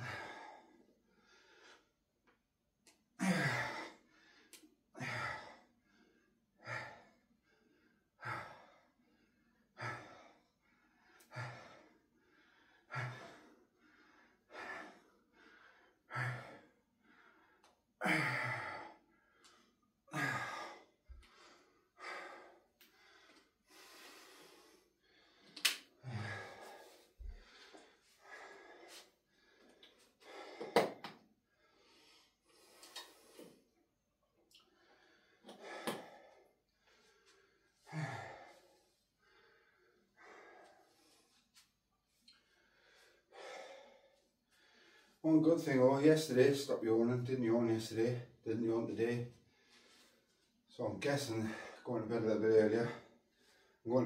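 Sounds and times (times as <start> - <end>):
man breathing hard: 0.0 - 2.0, 3.2 - 33.8, 34.5 - 45.2, 51.3 - 51.9, 52.7 - 53.9.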